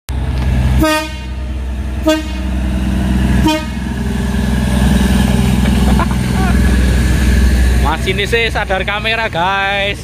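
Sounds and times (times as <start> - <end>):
diesel engine running: 0.1 - 10.0
train horn toots: 0.8 - 2.6, 3.4 - 3.9.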